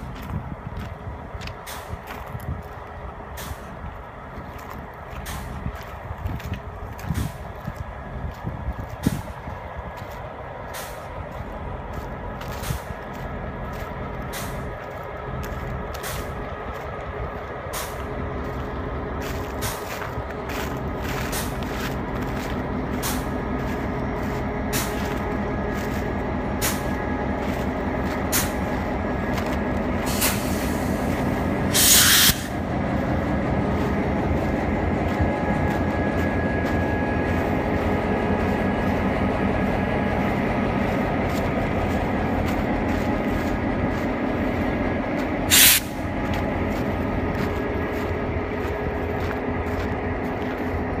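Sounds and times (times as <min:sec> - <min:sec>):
diesel locomotive idling: 0:00.0 - 0:51.0
air hiss bursts: 0:30.1 - 0:31.1, 0:31.7 - 0:32.5, 0:45.5 - 0:46.0.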